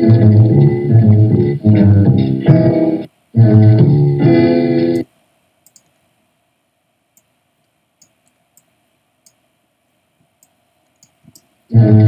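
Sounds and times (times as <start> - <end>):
computer mouse clicks: 5.6 - 6.0, 7.2 - 9.4, 10.3 - 11.5.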